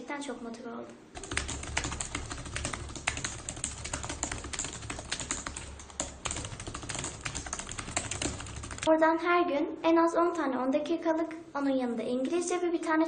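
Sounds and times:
fast typing on keyboard: 1.2s - 8.9s
steady low hum: 1.2s - 8.9s.

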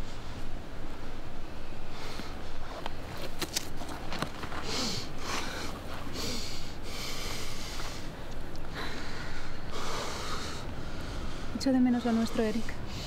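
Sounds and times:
person breathing heavily through nose: 4.6s - 13.0s.

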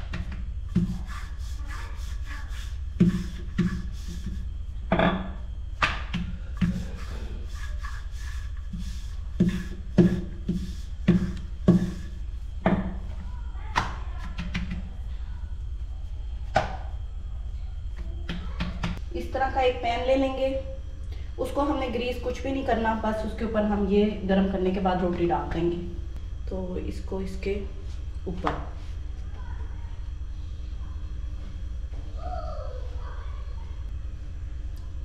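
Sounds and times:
steady low hum: 0.0s - 35.0s
rolling pin knocking on countertop: 9.4s - 12.0s.

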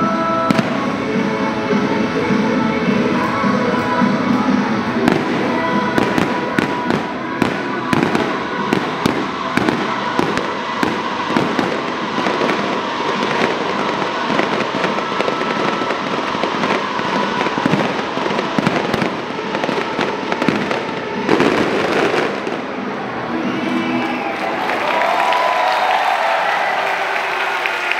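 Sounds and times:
fireworks crackle: 0.0s - 24.2s
firework shells bursting: 5.0s - 22.7s.

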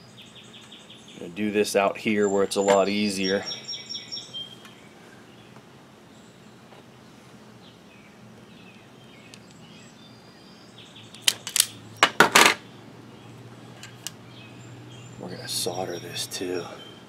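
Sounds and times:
faint bird chirps: 2.1s - 11.3s.

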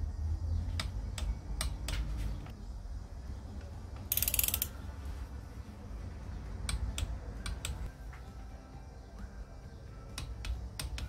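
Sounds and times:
ratchet clicking: 4.1s - 4.8s
torque wrench clicks: 4.1s - 4.8s.

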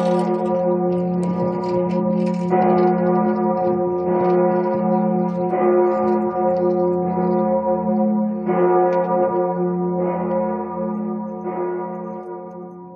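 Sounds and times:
wind rumbling on microphone: 0.0s - 5.2s
large church bell tolling: 0.0s - 12.9s.

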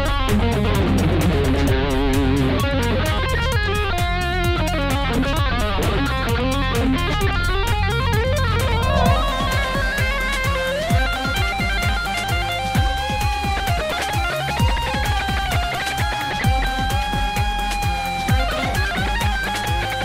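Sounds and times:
instrumental music with steady beat: 8.6s - 13.4s.

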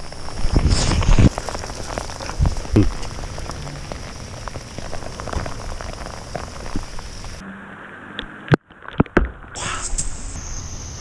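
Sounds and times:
hail pellets ticking: 0.0s - 7.4s
rain hissing: 0.0s - 7.4s, 9.6s - 11.0s.

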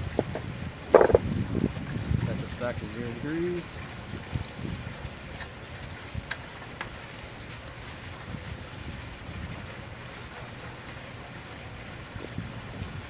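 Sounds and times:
wind noise on microphone: 0.0s - 6.4s, 7.7s - 10.5s, 11.9s - 13.0s.

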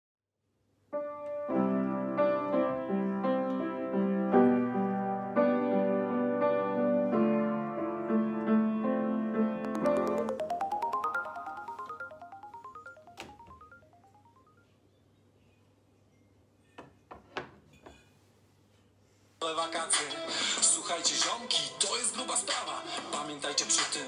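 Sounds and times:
piano chords: 1.0s - 14.4s.

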